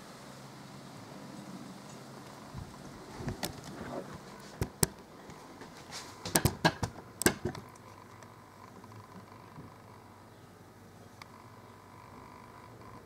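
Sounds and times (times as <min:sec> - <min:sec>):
sharp clicks and knocks: 0:06.3 - 0:09.3.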